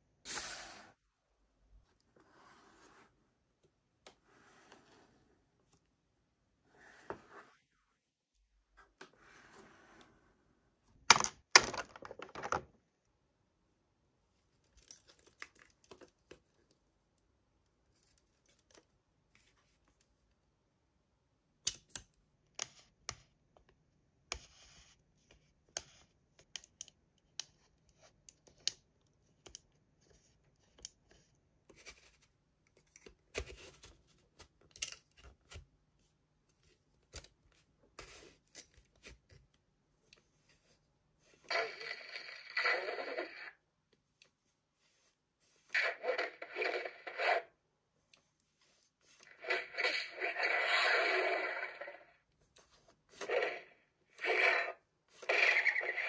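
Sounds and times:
toy packaging clicks and rustles: 0:11.1 - 0:12.8.

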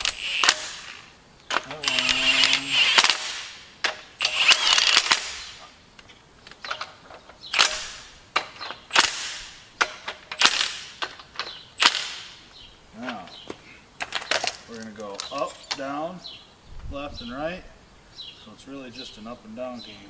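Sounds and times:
impact wrench hammering on bolts: 0:00.0 - 0:05.6, 0:07.5 - 0:12.3.

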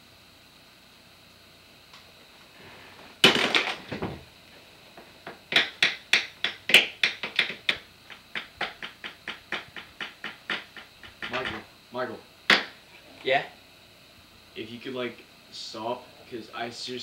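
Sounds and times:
sharp taps on wooden desk: 0:05.5 - 0:11.6.

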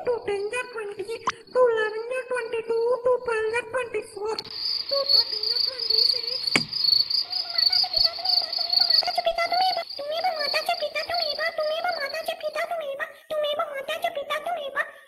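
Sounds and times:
crickets chirping: 0:00.0 - 0:13.0
sharp click: 0:06.5 - 0:06.8.

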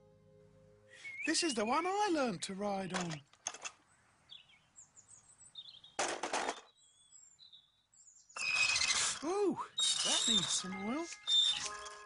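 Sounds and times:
bicycle squeaks: 0:08.4 - 0:12.0.

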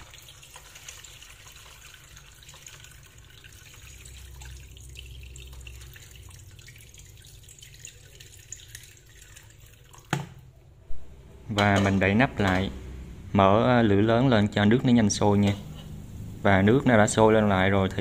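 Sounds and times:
water pouring into a metal pot: 0:00.0 - 0:10.4.

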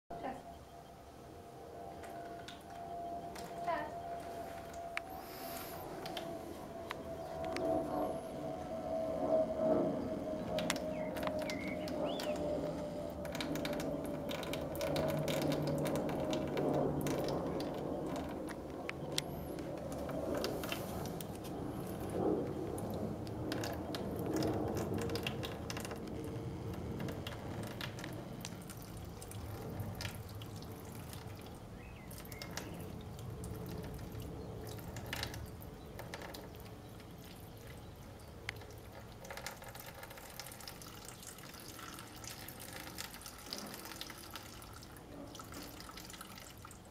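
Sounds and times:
small clicks and drips: 0:02.0 - 0:05.2, 0:06.0 - 0:07.8, 0:10.3 - 0:46.9
water pouring into plastic saucer: 0:13.2 - 0:18.5, 0:19.3 - 0:46.9.

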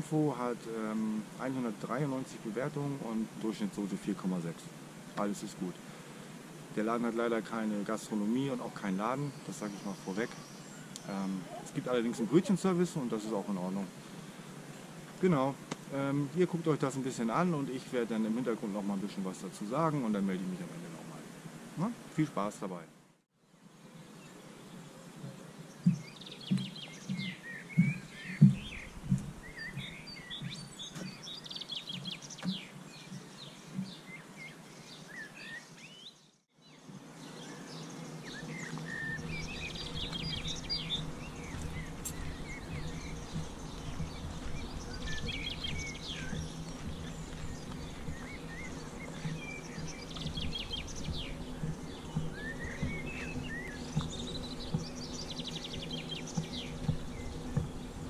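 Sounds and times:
songbirds chirping and singing: 0:00.0 - 0:21.1, 0:23.4 - 0:58.0
steady low hum: 0:36.8 - 0:58.0
loud low thumps: 0:39.2 - 0:58.0.

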